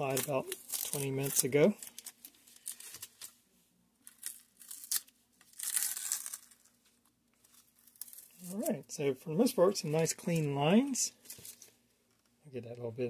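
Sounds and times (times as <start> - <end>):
masking tape ripping off plastic: 0.0 - 3.3, 4.1 - 6.8.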